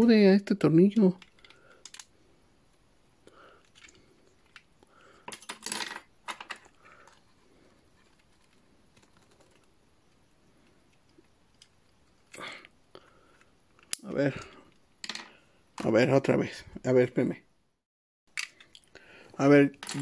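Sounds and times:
plastic toy parts clicking: 1.2 - 2.1, 18.3 - 18.9.

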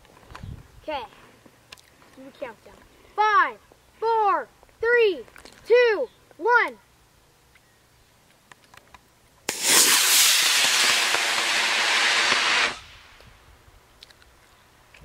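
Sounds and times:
rocket motor hiss: 9.5 - 13.3.

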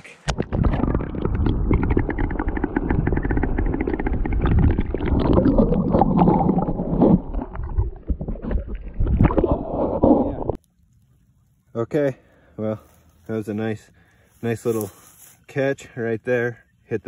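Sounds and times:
muffled underwater rumbling and gurgling: 0.3 - 10.6.

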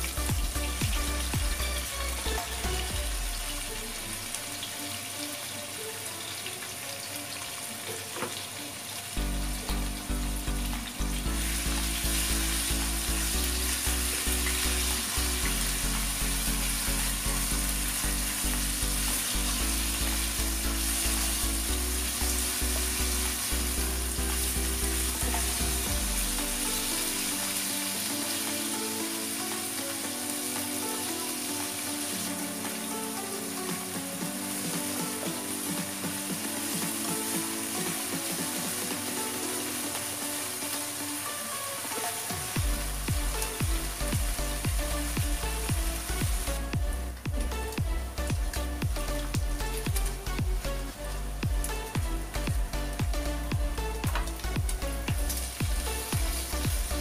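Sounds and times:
meat sizzling in a wok: 0.0 - 50.3, 51.6 - 57.0
spatula stirring in a wok: 20.4 - 29.0.

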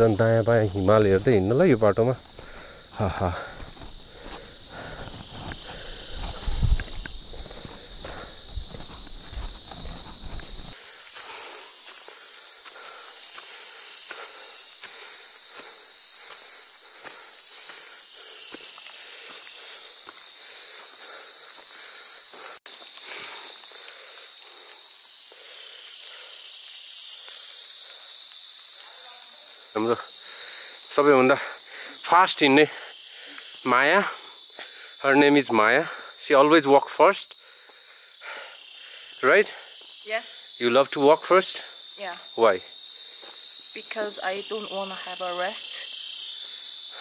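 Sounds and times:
footsteps: 0.0 - 17.9
insect calling in pulses: 0.0 - 32.1, 37.0 - 47.0
insects droning: 0.0 - 47.0.

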